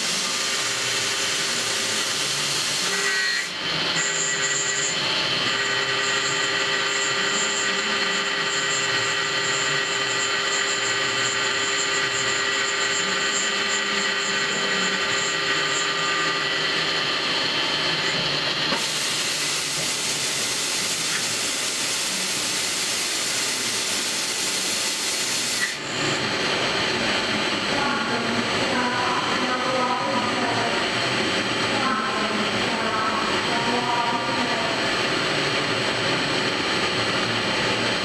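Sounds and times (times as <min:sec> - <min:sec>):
lathe running with steady whine: 0:00.0 - 0:38.0.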